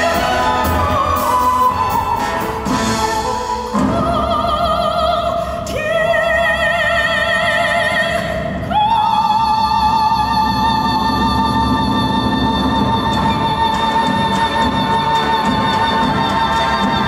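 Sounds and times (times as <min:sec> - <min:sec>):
orchestral accompaniment: 0:00.0 - 0:06.2, 0:10.2 - 0:17.0.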